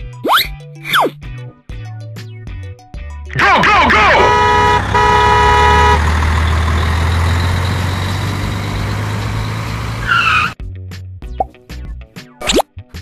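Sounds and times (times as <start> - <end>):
truck horn: 3.3 - 10.6
heavy truck engine rumble: 3.4 - 10.6.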